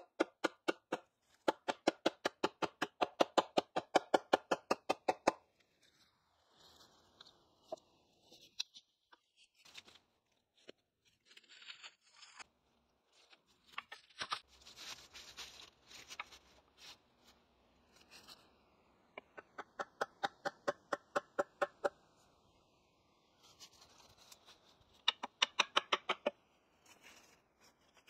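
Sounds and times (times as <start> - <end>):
branches and dry leaves rustling: 13.1 - 18.6, 23.4 - 24.8, 26.7 - 28.0.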